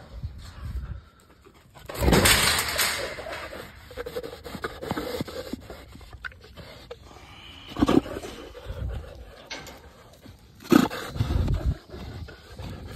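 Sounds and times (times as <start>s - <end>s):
wire panel rattling: 2.0s - 3.5s.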